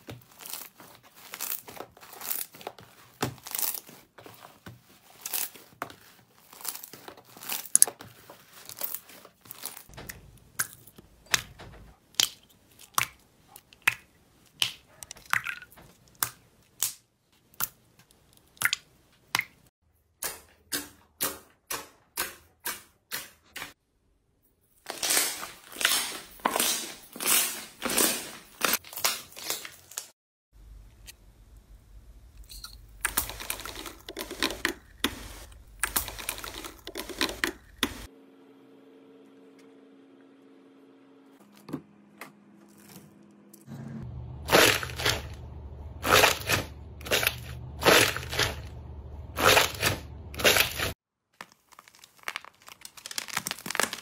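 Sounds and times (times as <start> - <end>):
slime squeezed by hand crackling: 49.4 - 54.0.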